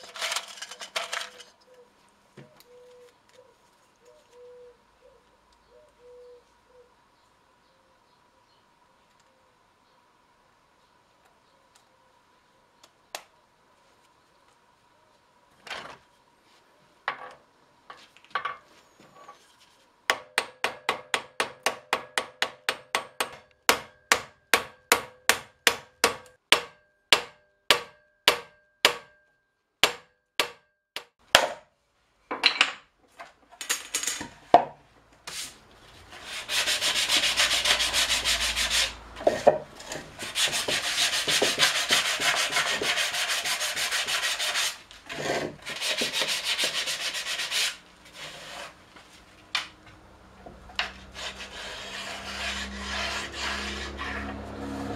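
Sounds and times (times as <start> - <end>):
sanding wood by hand: 35.3 - 39.0, 39.8 - 48.8, 50.9 - 54.9.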